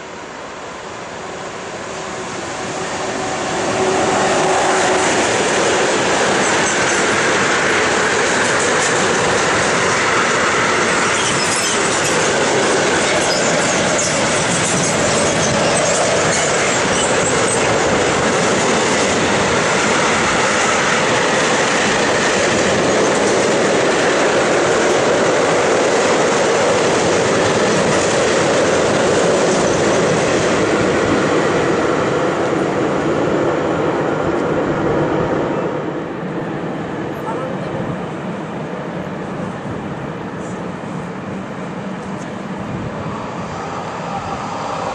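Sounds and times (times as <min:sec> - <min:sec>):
train wheels rumbling on rail: 0:00.0 - 0:44.9
train wheel squeal: 0:06.3 - 0:19.0, 0:29.3 - 0:30.2.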